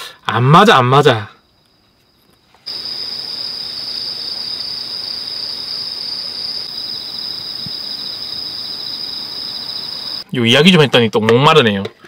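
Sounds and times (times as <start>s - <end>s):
crickets chirring: 0.1s - 10.8s.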